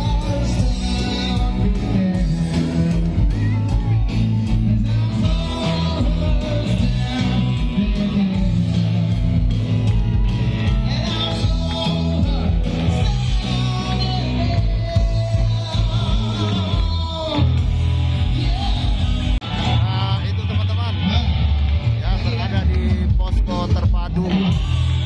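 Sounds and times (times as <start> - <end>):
loud music with singer: 0.0 - 25.0.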